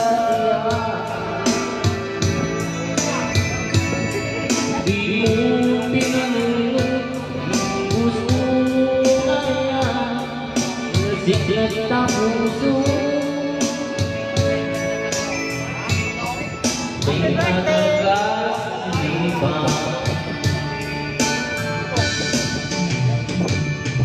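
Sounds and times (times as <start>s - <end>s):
man singing into microphone: 0.0s - 2.4s, 4.5s - 14.3s, 17.0s - 20.5s
backing track with guitar and beat: 0.0s - 24.0s.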